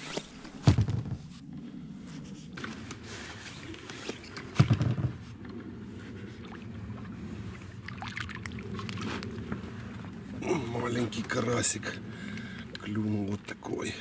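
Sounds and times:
loud thump: 0.6 - 1.3
steady low rumble: 0.8 - 14.0
knocks and clicks in boat: 4.2 - 5.6.

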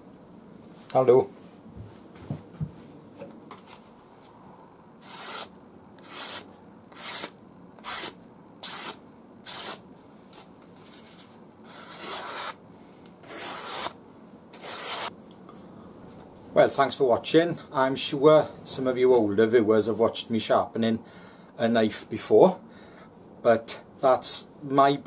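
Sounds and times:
knife slicing paper: 5.0 - 12.6, 13.2 - 14.0, 14.6 - 15.1.

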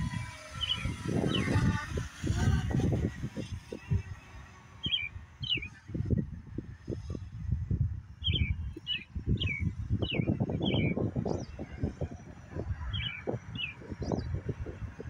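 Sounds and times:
bird chirping: 0.0 - 2.0, 4.8 - 5.8, 8.2 - 12.0, 12.9 - 14.4
wind buffeting microphone: 0.0 - 15.0.

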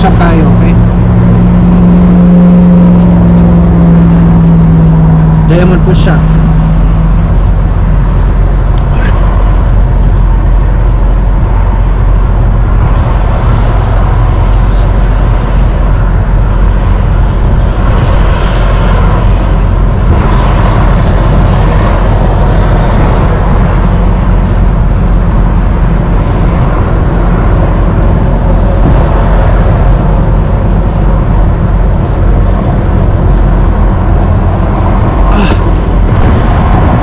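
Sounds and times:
diesel truck engine idling: 0.0 - 37.0.

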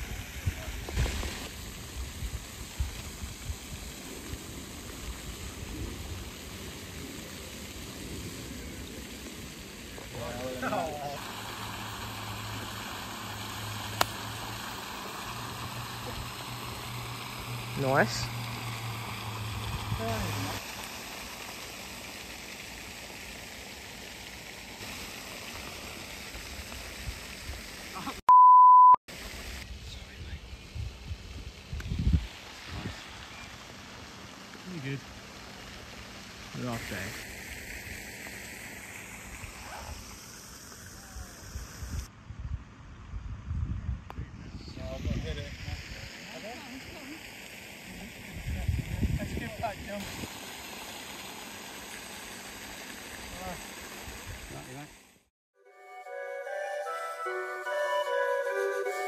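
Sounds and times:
wind buffeting microphone: 30.2 - 33.0, 41.8 - 46.0, 48.3 - 49.9.

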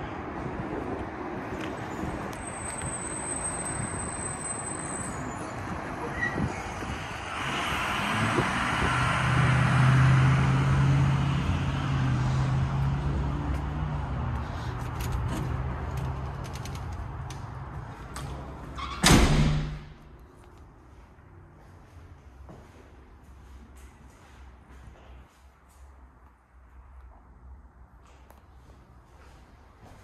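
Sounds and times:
vehicle passing by: 5.6 - 18.8.

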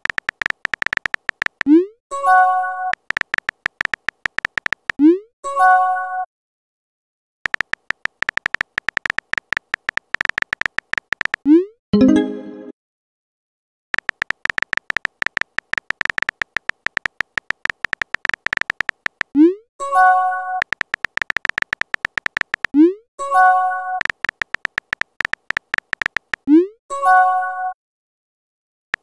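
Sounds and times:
keyboard tapping clicks: 0.0 - 1.8, 2.9 - 5.0, 7.5 - 11.6, 14.0 - 19.4, 20.6 - 22.8, 24.0 - 26.5.

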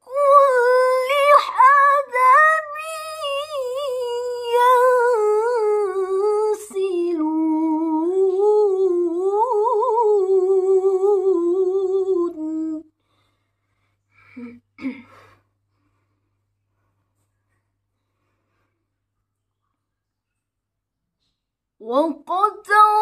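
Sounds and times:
woman reciting in melodic chant: 0.0 - 12.9, 21.8 - 23.0.

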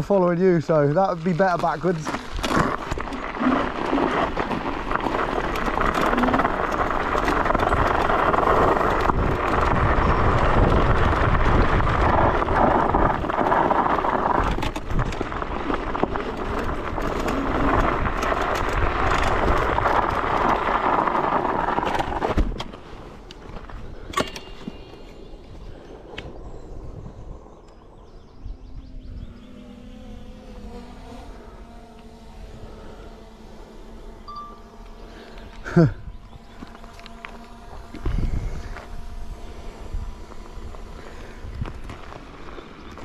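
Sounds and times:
scooter tyre noise: 0.0 - 27.0, 27.9 - 43.0.

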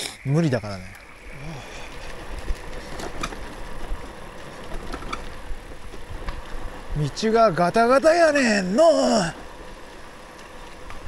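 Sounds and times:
bicycle tyres rumbling: 0.0 - 11.0
bike clicks and rattles: 1.8 - 8.1, 9.4 - 11.0.

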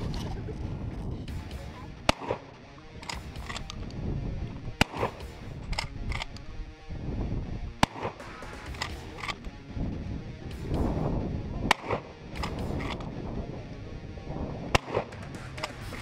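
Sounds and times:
shotgun shots: 1.3 - 3.8, 4.8 - 6.4, 7.8 - 9.4, 11.7 - 13.0, 14.7 - 16.0
shotgun pump clicks: 3.0 - 4.0, 4.8 - 6.4, 7.8 - 9.5, 11.7 - 13.1, 14.8 - 16.0.

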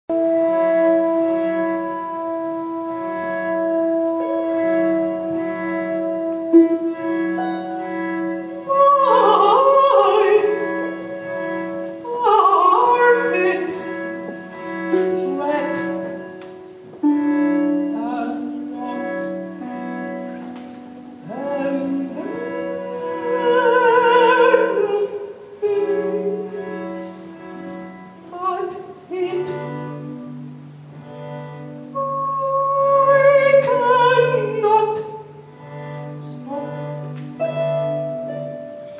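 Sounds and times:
bowed strings ensemble chords: 0.1 - 38.9
countertenor singing opera: 3.8 - 20.0, 20.8 - 30.4, 31.8 - 35.5.

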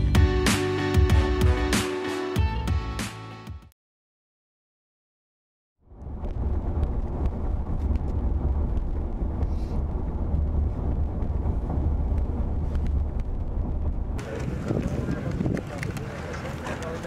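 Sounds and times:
car road and engine rumble: 5.8 - 17.0.

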